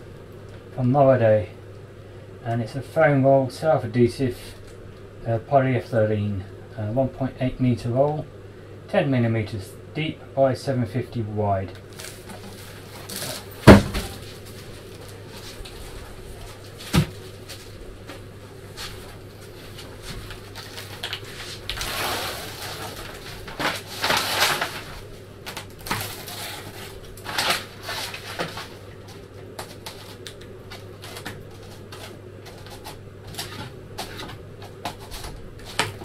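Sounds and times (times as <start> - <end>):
paper backing rustling: 11.8 - 36.0.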